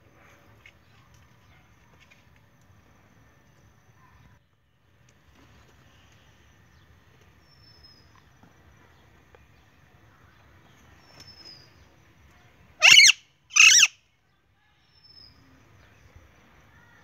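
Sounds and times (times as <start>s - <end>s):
parakeet harsh calls: 12.8s - 14.0s.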